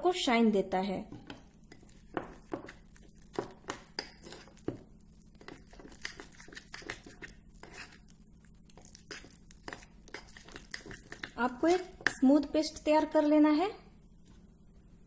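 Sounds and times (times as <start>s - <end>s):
spoon scraping glass bowl: 1.7s - 4.8s, 5.4s - 8.1s, 8.8s - 12.3s.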